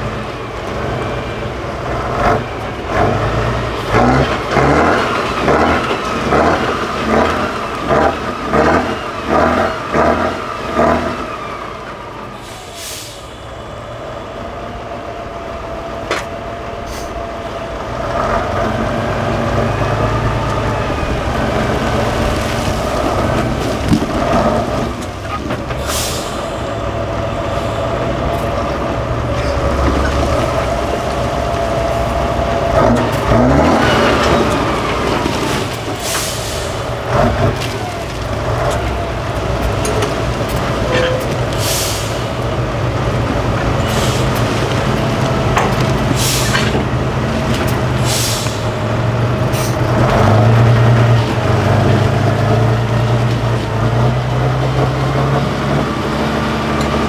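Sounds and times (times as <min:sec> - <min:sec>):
diesel engine revving: 0:00.0 - 0:57.0
short air hisses: 0:12.4 - 0:13.4, 0:25.8 - 0:26.6, 0:41.6 - 0:42.3, 0:48.0 - 0:48.7.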